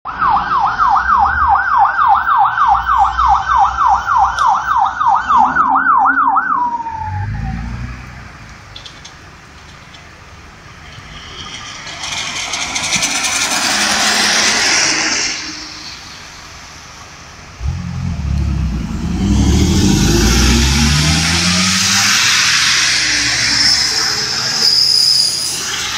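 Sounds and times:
fire truck siren yelping: 0:00.1 - 0:07.8, 0:17.6 - 0:24.6
tyre hiss on wet road: 0:13.5 - 0:17.5, 0:21.6 - 0:25.9.

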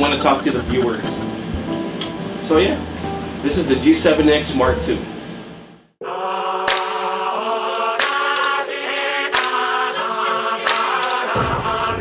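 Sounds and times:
sustained chords: 0:00.0 - 0:03.4
bass: 0:00.0 - 0:05.2
steady beat: 0:00.4 - 0:01.8, 0:08.0 - 0:08.7, 0:09.3 - 0:11.6
choir-like vocals: 0:06.0 - 0:12.0.

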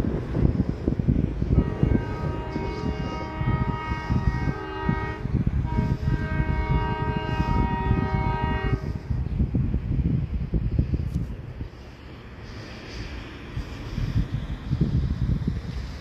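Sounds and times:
heavy low rumble: 0:00.0 - 0:16.0
locomotive air horn blasts: 0:01.4 - 0:09.3.

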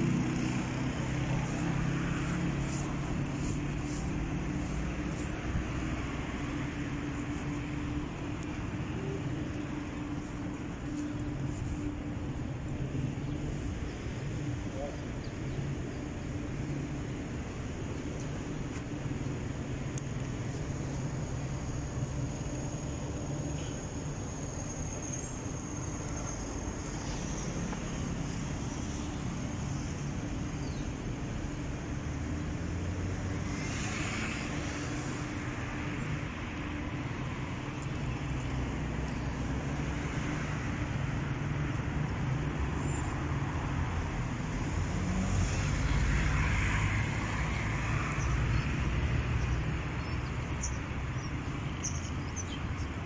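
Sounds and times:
road traffic rumble: 0:00.0 - 0:53.0.

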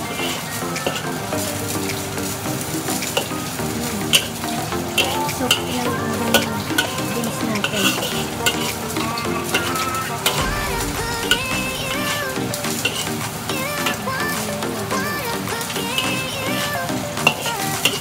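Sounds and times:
food sizzling in wok: 0:00.0 - 0:18.0
spatula scraping and clinking wok: 0:02.8 - 0:10.5, 0:11.2 - 0:14.0.

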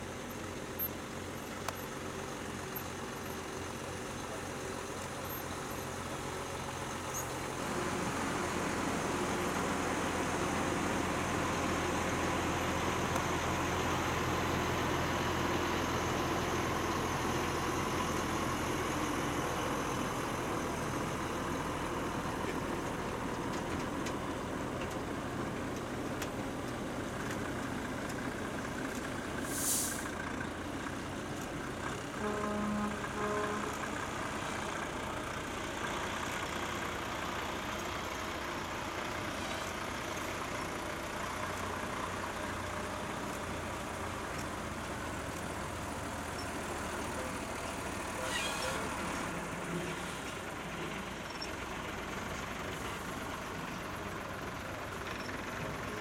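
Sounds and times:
diesel truck engine rumble: 0:00.0 - 0:56.0
air brakes hissing: 0:29.4 - 0:30.3.

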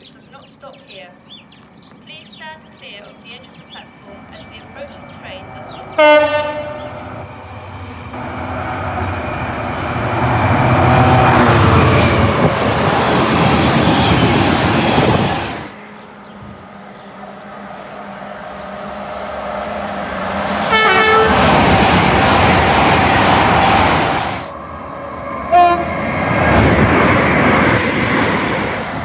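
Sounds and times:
approaching train rumble: 0:00.0 - 0:29.0
train rushing past: 0:03.2 - 0:29.0
train horn: 0:05.9 - 0:07.1, 0:20.6 - 0:24.2, 0:25.5 - 0:26.0.

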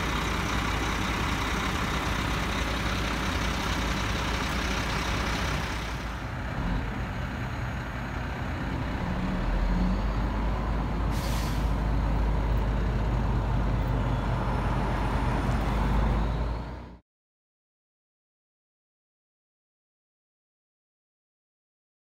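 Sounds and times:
tow truck engine rumble: 0:00.0 - 0:17.0
air brakes hiss: 0:11.1 - 0:11.8.

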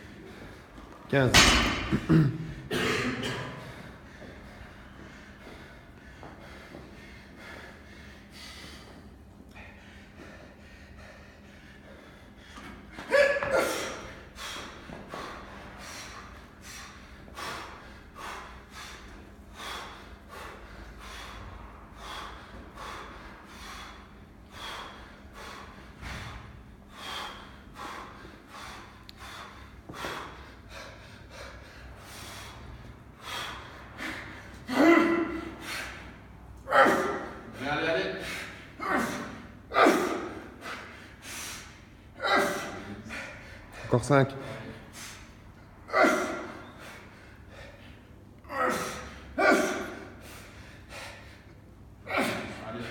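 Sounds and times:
man gasping breaths: 0:00.0 - 0:52.9
man grunting: 0:01.1 - 0:03.4, 0:34.7 - 0:35.4, 0:36.7 - 0:37.7, 0:38.8 - 0:40.4, 0:42.2 - 0:43.1, 0:45.9 - 0:46.5, 0:48.4 - 0:50.1, 0:52.0 - 0:52.9.

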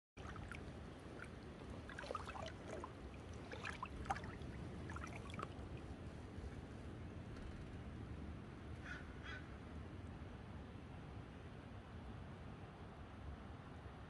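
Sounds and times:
boots wading through water: 0:00.2 - 0:05.9
low steady rumble: 0:00.2 - 0:14.0.

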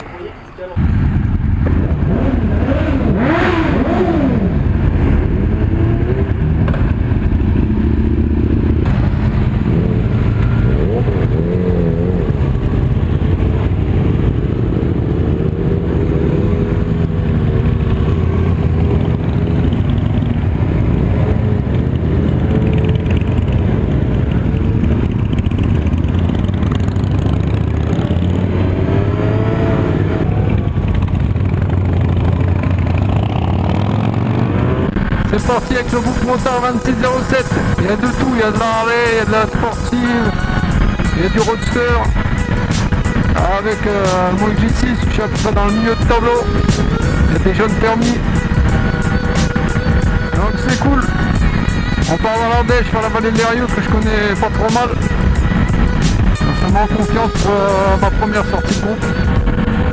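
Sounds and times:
motorcycle engines rumbling: 0:00.0 - 0:59.9
motorcycles revving and pulling away: 0:00.0 - 0:59.9.

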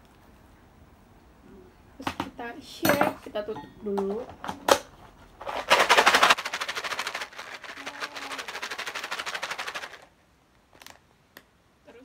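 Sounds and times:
snack rattling in plastic container: 0:05.4 - 0:10.1.

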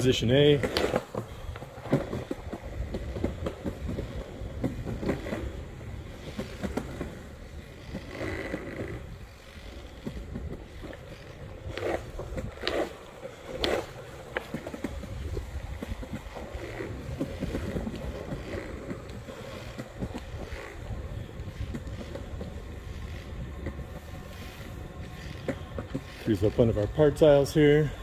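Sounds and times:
skateboard wheels rolling on concrete: 0:00.0 - 0:28.0
sharp skateboard clacks: 0:00.5 - 0:09.1.

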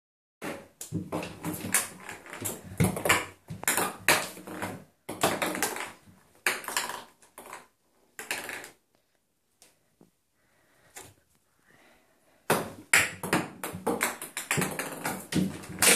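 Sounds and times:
ping pong ball bouncing in bathtub: 0:12.5 - 0:15.9.

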